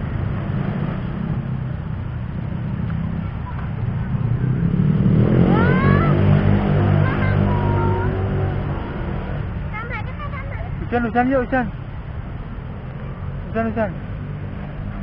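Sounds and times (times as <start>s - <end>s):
vehicle speeding up past: 0.0s - 10.2s
low rumble of road traffic: 0.0s - 15.0s.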